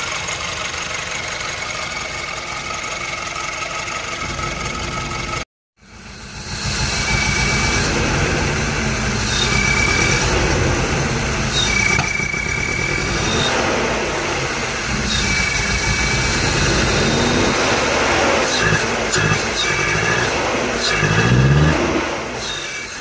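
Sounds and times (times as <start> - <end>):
car engine running: 0.0 - 23.0
high whistling tone: 5.9 - 23.0.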